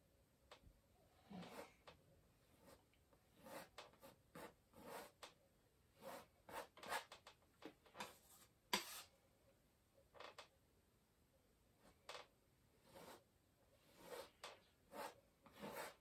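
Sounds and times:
palette knife scraping paint: 0:02.6 - 0:05.2, 0:06.0 - 0:07.2, 0:08.0 - 0:09.1, 0:12.8 - 0:13.2, 0:13.8 - 0:16.0.

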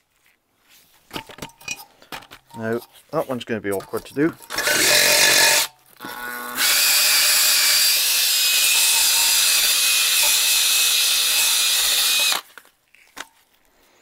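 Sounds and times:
drill whine: 0:04.6 - 0:12.4.

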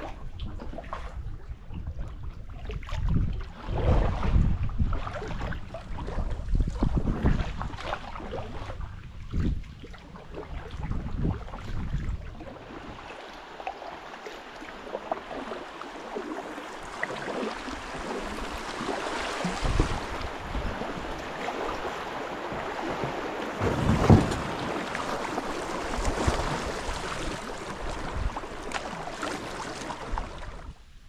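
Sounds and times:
whitewater rushing: 0:12.6 - 0:30.4.

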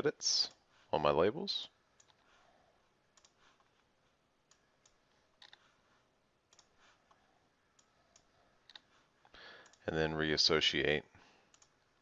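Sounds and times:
low room hiss: 0:00.0 - 0:12.0
computer mouse and keyboard clicks: 0:02.0 - 0:02.3, 0:03.1 - 0:03.8, 0:04.5 - 0:05.7, 0:06.5 - 0:08.9.

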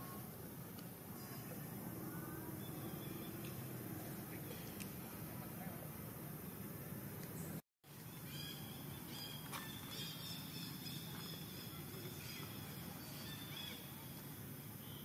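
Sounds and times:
steady background hiss: 0:00.0 - 0:15.0.

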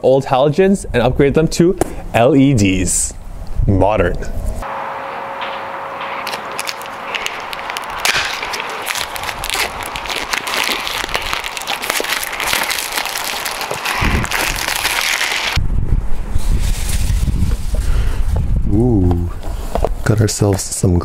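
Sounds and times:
plastic wrap crinkling: 0:06.2 - 0:15.6.

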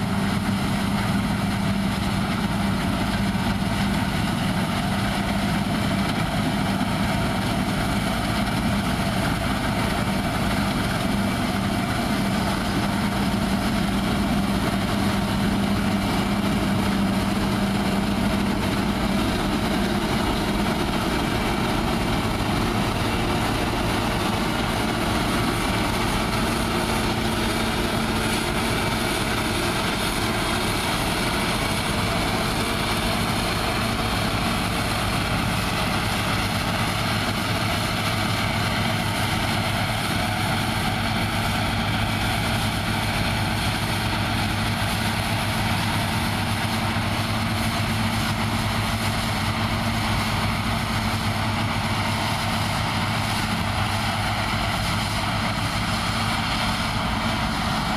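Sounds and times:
combine harvester droning: 0:00.0 - 0:57.9.

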